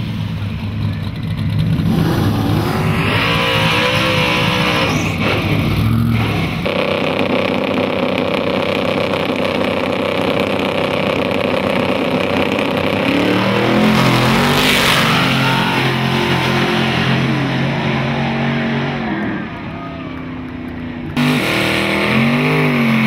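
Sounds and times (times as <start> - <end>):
race car engines accelerating: 0.0 - 23.0.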